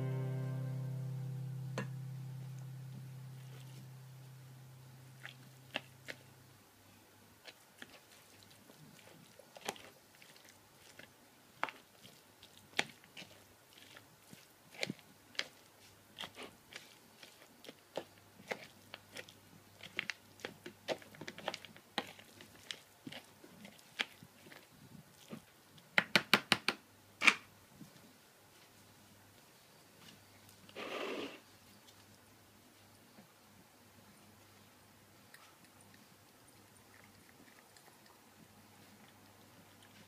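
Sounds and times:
spoon stirring dry kibble: 7.4s - 25.5s.

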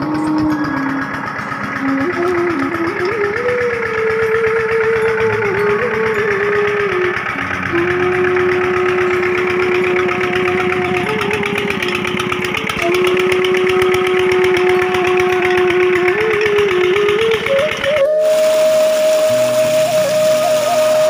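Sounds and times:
diesel engine running: 0.0s - 21.0s
slow bamboo flute melody: 0.0s - 21.0s.

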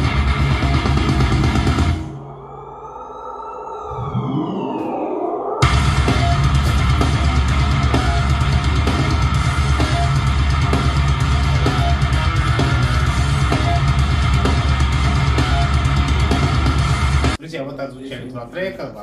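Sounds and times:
rock music through speaker: 0.0s - 2.2s, 5.6s - 17.4s.

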